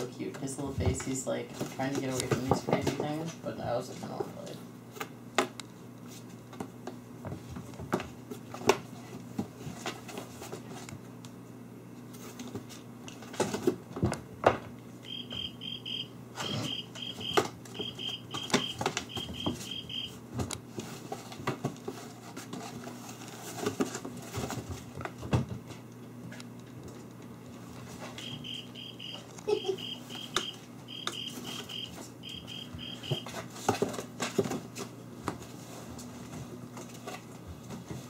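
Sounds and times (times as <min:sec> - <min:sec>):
kittens scuffling on wooden floor: 0:06.0 - 0:11.1, 0:16.4 - 0:38.0.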